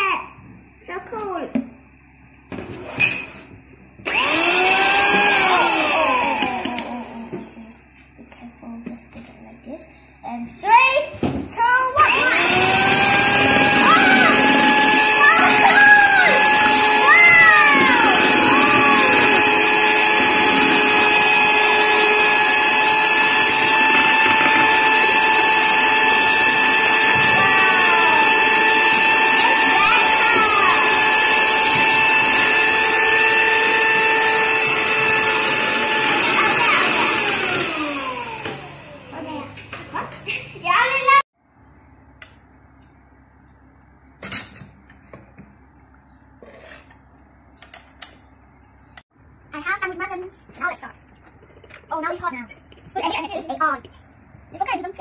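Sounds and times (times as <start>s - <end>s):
electric hand mixer whisking: 4.1s - 7.6s, 12.0s - 39.5s.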